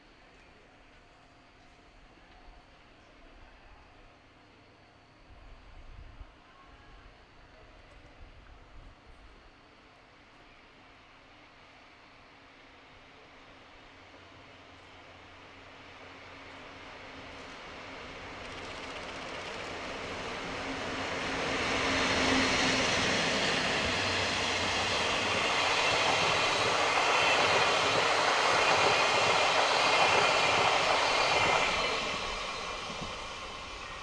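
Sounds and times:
diesel locomotive passing: 14.4s - 34.0s
train wheels rushing on rails: 14.9s - 34.0s.

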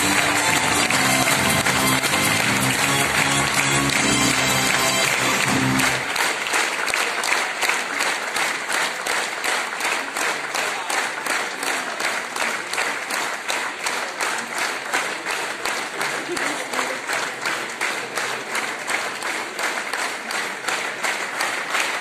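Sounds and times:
music: 0.0s - 6.3s
audience applauding: 0.0s - 22.0s.

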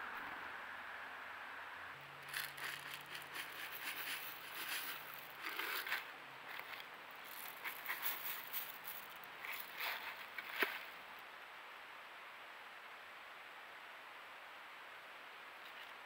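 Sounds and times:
birdseed pouring into wooden tray: 2.3s - 11.0s.

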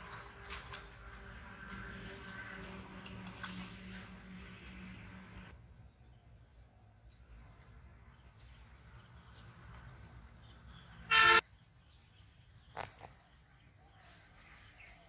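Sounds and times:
short horn toot: 11.1s - 11.4s.

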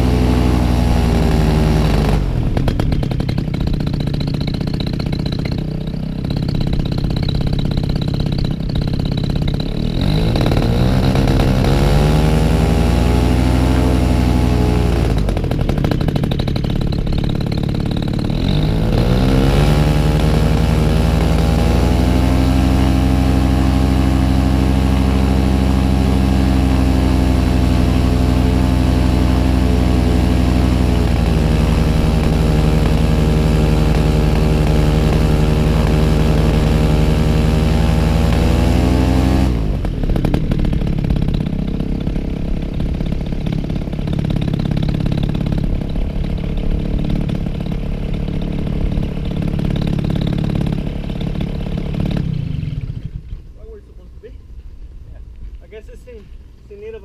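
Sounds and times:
paramotor engine running: 0.0s - 57.0s.

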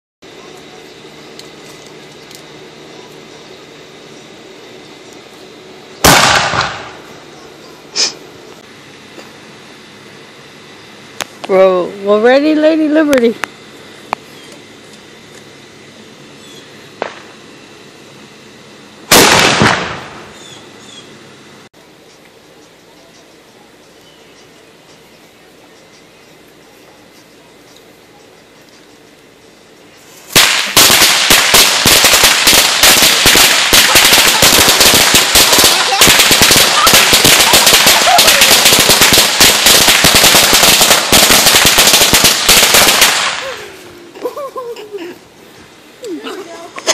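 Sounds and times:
sharp crack: 6.0s - 7.0s, 17.0s - 17.3s, 19.1s - 20.3s, 30.3s - 43.6s
tube cannon bang: 6.0s - 7.0s, 19.1s - 20.3s.

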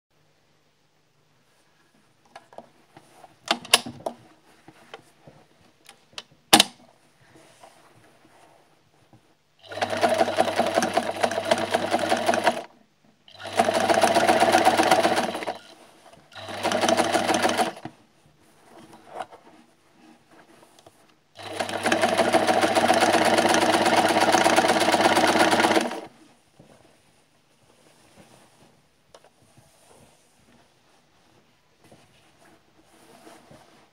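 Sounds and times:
sewing machine stitching: 9.6s - 12.7s, 13.3s - 17.9s, 21.4s - 26.1s.

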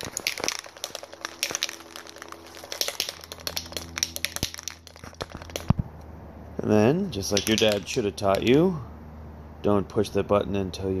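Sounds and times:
spray can rattling: 0.0s - 5.8s, 7.2s - 8.5s.

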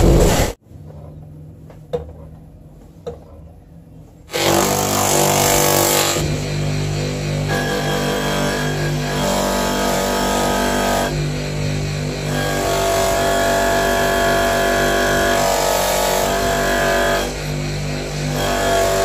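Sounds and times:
polishing motor humming: 4.3s - 19.0s.

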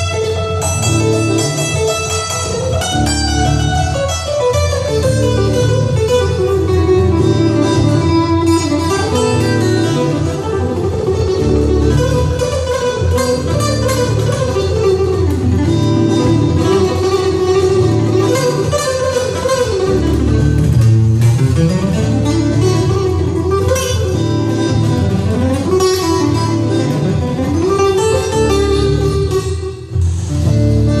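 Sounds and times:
fingerstyle acoustic guitar: 0.0s - 31.0s.

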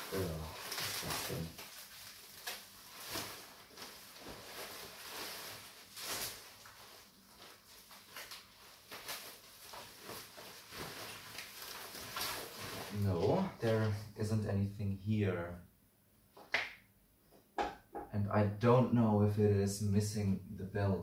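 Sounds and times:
packing material rustling and crinkling: 0.0s - 14.0s.

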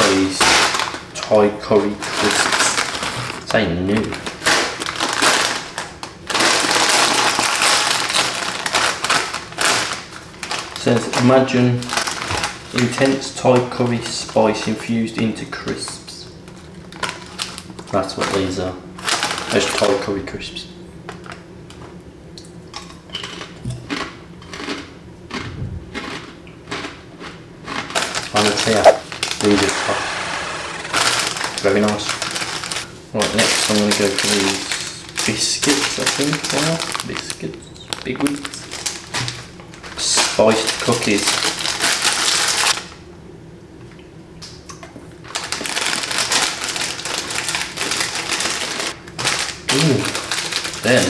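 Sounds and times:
crisp being crunched and chewed: 0.0s - 13.2s, 16.5s - 18.4s, 23.2s - 29.9s, 30.6s - 42.9s, 44.4s - 51.0s
plastic wrapper crinkling: 0.0s - 14.8s, 16.5s - 20.0s, 27.8s - 29.7s, 30.5s - 42.9s, 45.2s - 51.0s
biscuit crunching while chewed: 23.2s - 29.7s, 45.5s - 51.0s.

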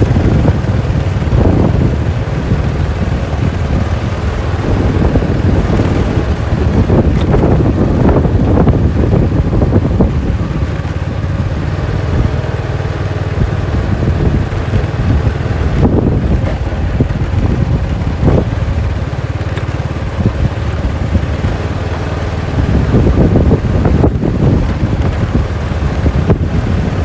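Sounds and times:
motor scooter engine running: 0.0s - 27.0s
wind buffeting microphone: 0.0s - 27.0s.

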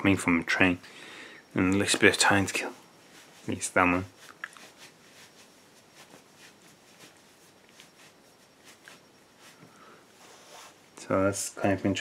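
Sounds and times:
faint clicks and rustles: 1.6s - 11.1s.

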